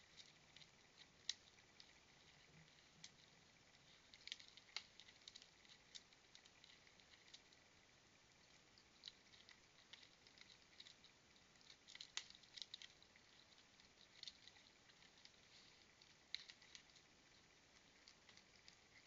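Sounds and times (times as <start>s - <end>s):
claws clicking on plastic feeder: 8.6s - 19.0s.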